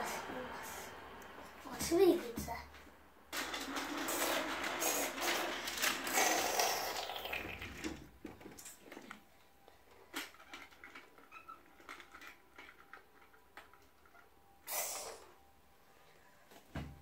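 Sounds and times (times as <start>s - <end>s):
plastic toy train pieces clicking: 3.4s - 8.8s, 10.1s - 14.2s.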